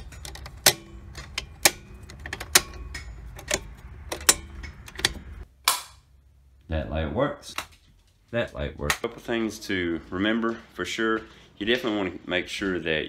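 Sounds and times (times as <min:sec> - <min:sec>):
circuit breakers clicking on: 0:00.0 - 0:06.0.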